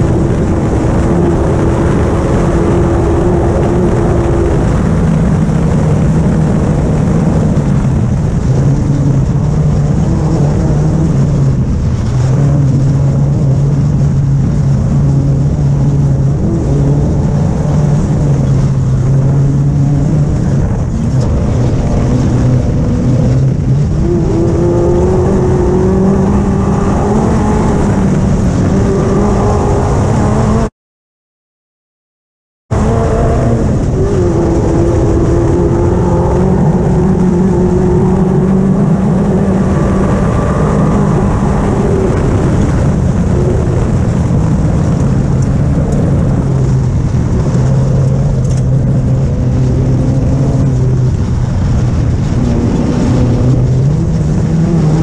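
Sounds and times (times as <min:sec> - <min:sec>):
race car engine running hard: 0:00.0 - 0:30.7, 0:32.7 - 0:55.0
wind and road noise: 0:00.0 - 0:30.7, 0:32.7 - 0:55.0.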